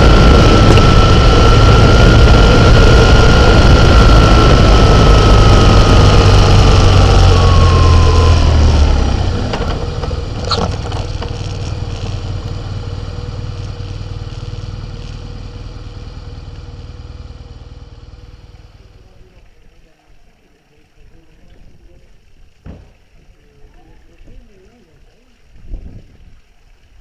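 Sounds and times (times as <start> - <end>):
wind and road noise: 0.0 - 18.6, 25.5 - 27.0
high whine sliding down: 0.0 - 19.0
steady hum: 0.0 - 19.8.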